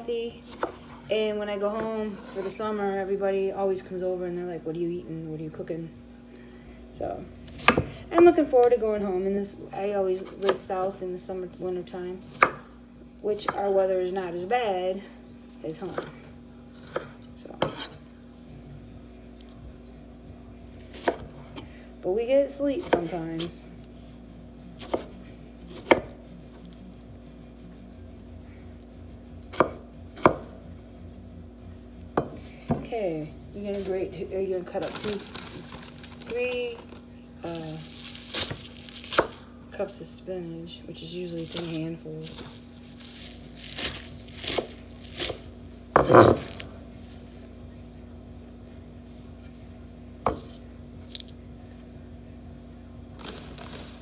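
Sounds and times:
faint low hum: 0:00.0 - 0:54.0
knife chopping on wooden board: 0:12.3 - 0:12.6, 0:29.5 - 0:30.5, 0:46.0 - 0:46.6, 0:50.2 - 0:50.6.

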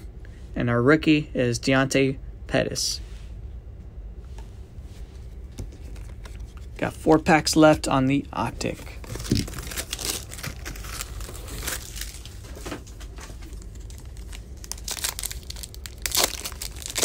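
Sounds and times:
foil wrapper crinkling and tearing: 0:08.6 - 0:17.0.

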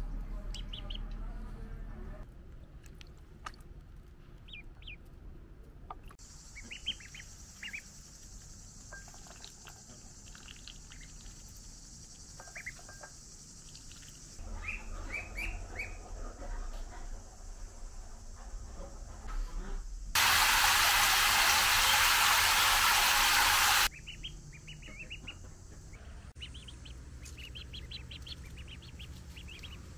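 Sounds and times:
ducklings peeping: 0:00.3 - 0:01.3, 0:04.4 - 0:05.1, 0:05.9 - 0:08.2, 0:09.2 - 0:12.9, 0:13.7 - 0:16.5, 0:20.3 - 0:29.9.

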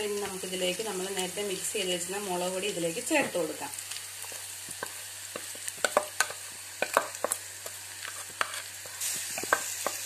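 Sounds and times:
food sizzling in oil: 0:00.0 - 0:10.0.

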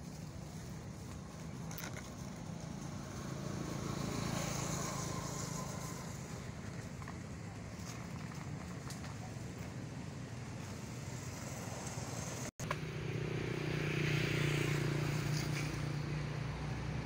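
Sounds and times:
outdoor rumble: 0:00.0 - 0:17.0
vehicle passing: 0:00.4 - 0:07.0, 0:10.5 - 0:17.0.

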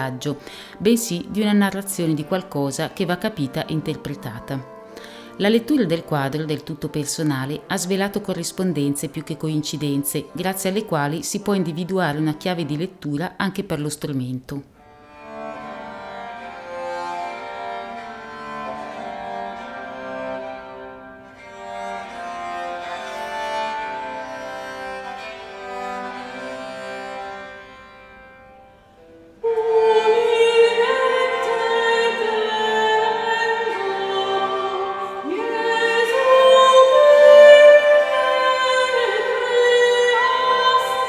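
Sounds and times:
woman singing: 0:00.0 - 0:04.7, 0:05.3 - 0:14.6, 0:29.4 - 0:41.0
bowed viola melody: 0:00.0 - 0:41.0.

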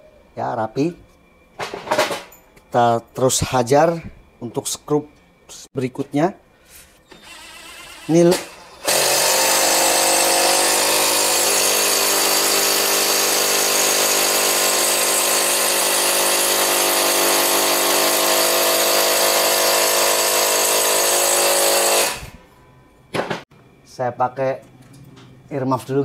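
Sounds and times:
impact driver hammering screw: 0:07.1 - 0:22.3.

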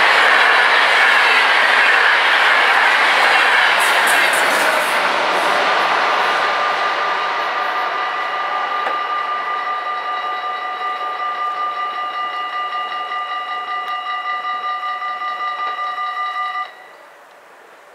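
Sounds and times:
train rushing past: 0:00.0 - 0:17.9
level crossing bells ringing: 0:06.6 - 0:17.0.

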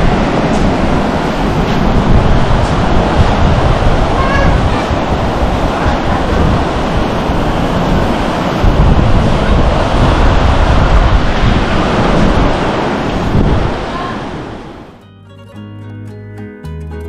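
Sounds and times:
surf washing on beach: 0:00.0 - 0:15.0
wind buffeting microphone: 0:00.0 - 0:15.0.

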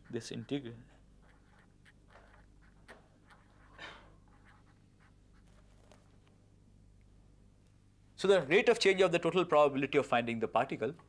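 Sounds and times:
writing on a board: 0:00.0 - 0:05.6
low room hum: 0:00.0 - 0:11.0.

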